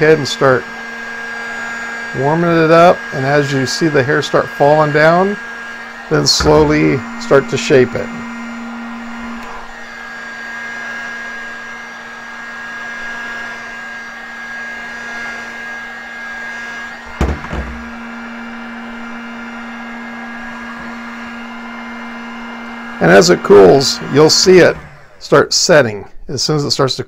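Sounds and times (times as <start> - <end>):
heat gun blowing hiss: 0.0 - 25.8
heat gun thunk on wooden table: 6.4 - 6.8, 17.1 - 18.0.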